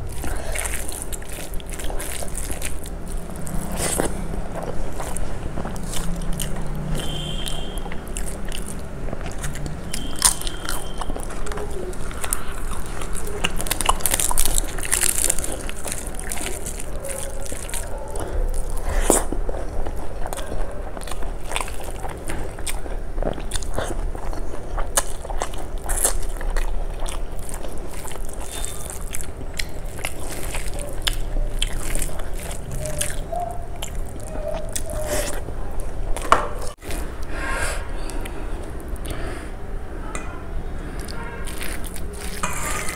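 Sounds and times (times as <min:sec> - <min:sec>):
fingers squishing wet rice: 0:00.0 - 0:08.8
wet chewing and lip smacks: 0:00.0 - 0:37.2, 0:40.8 - 0:42.9.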